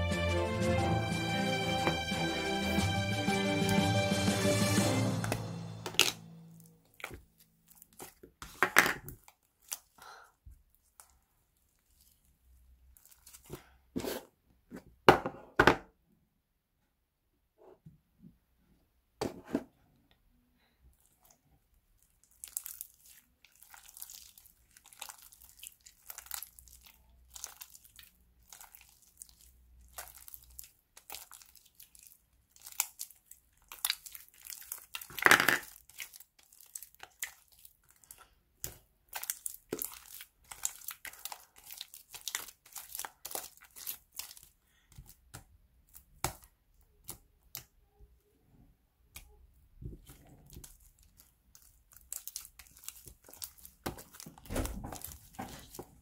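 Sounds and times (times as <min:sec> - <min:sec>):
slime crackling and popping: 0:22.1 - 0:47.6, 0:50.0 - 0:56.0.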